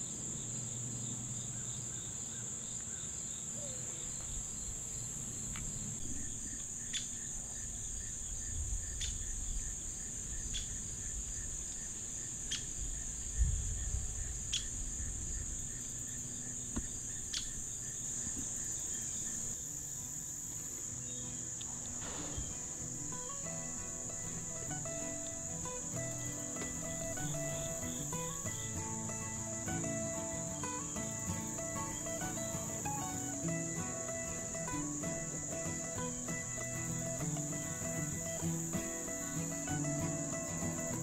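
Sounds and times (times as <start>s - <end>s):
high-pitched insect chorus: 0.0s - 41.0s
low thump: 22.0s - 22.8s.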